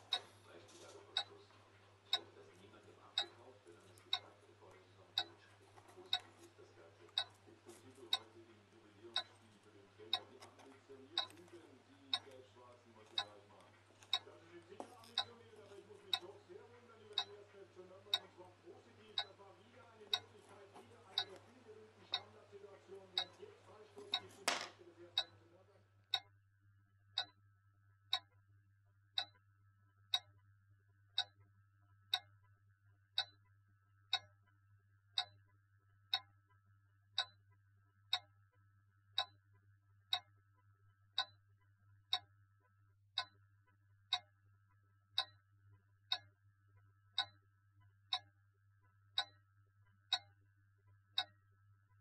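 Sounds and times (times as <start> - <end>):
clock ticking: 0.0 - 25.4, 26.1 - 26.3, 27.1 - 27.4, 28.1 - 28.4, 29.1 - 29.4, 30.1 - 30.4, 31.1 - 31.5, 32.1 - 32.4, 33.1 - 33.5, 34.1 - 34.4, 35.1 - 35.4, 36.1 - 36.4, 37.2 - 37.4, 38.1 - 38.3, 39.1 - 39.4, 40.1 - 40.3, 41.1 - 41.4, 42.1 - 42.3, 43.1 - 43.4, 44.1 - 44.4, 45.1 - 45.5, 46.1 - 46.4, 47.1 - 47.4, 48.1 - 48.4, 49.1 - 50.4, 51.0 - 51.4
faint low hum: 0.0 - 28.2.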